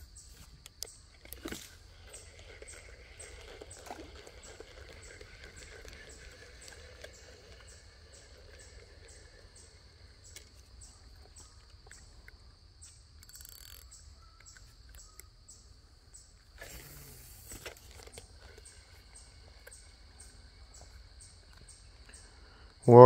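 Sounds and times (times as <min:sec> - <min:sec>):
faint high-pitched chirp: 0:02.1 - 0:17.6
brief hiss: 0:16.6 - 0:17.8.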